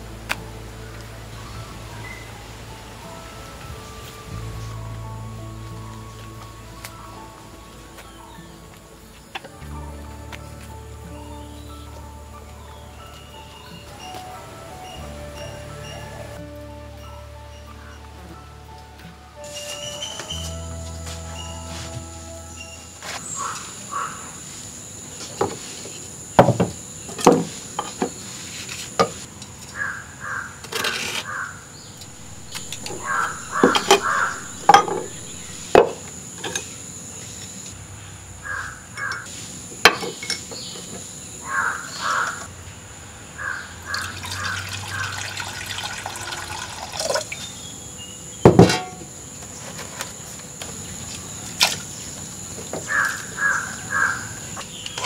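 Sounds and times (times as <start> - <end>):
crows cawing: 23.4 - 24.4, 29.8 - 30.6, 31.2 - 31.6, 32.2 - 35.6, 38.4 - 39.2, 41.4 - 42.5, 43.4 - 45.2, 52.9 - 54.5
spoon and clay pots knocking: 32.2 - 36.0.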